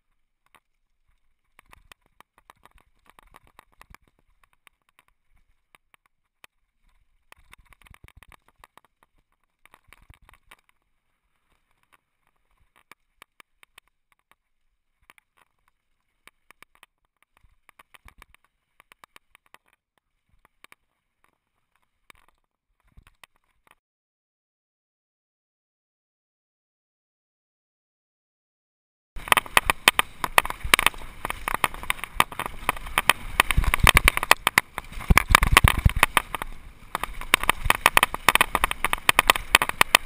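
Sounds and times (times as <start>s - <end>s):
bike tyres over gravel and rocks: 0.0s - 23.8s, 29.2s - 40.0s
bike chain and frame rattling: 0.1s - 14.4s, 29.2s - 40.0s.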